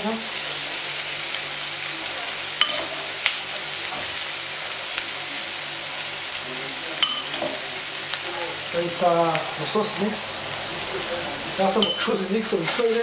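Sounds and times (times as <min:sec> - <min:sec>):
meatballs sizzling in a frying pan: 0:00.0 - 0:13.0
light ringing clinks: 0:07.0 - 0:07.5.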